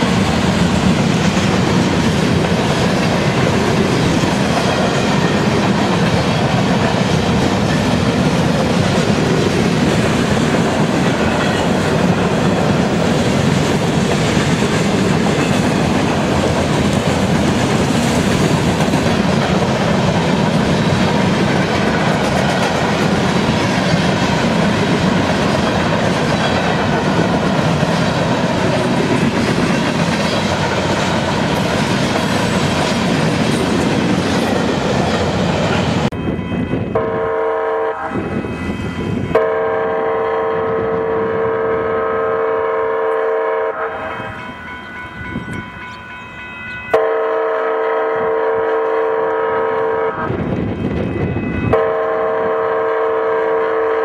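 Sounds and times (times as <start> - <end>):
freight train rumbling past: 0.0 - 54.0
locomotive air horn blasts: 36.8 - 44.4, 46.9 - 50.4, 51.7 - 54.0.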